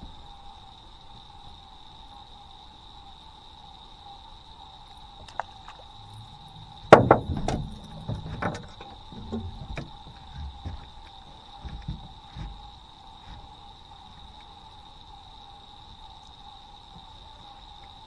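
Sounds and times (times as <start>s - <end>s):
steady high-pitched tone: 3.9s - 10.9s
knocks on a boat: 6.8s - 10.9s.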